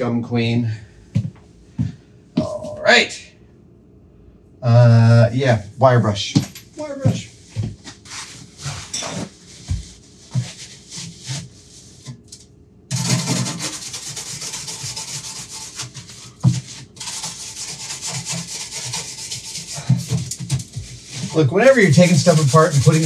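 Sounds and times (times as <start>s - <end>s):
wire brush scrubbing sink: 8.1s - 12.2s, 12.9s - 23.0s.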